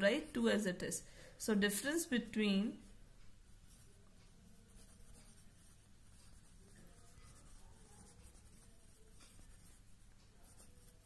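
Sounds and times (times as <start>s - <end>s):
pencil scratching on paper: 3.7s - 11.0s.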